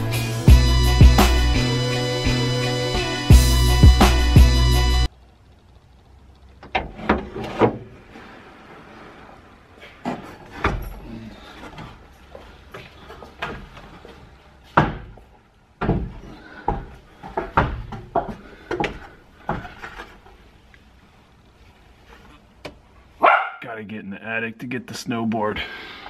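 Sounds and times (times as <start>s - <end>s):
footfalls on ladder steps: 9.9s - 20.5s
ladder knocks and thuds: 10.0s - 11.0s, 14.6s - 20.1s.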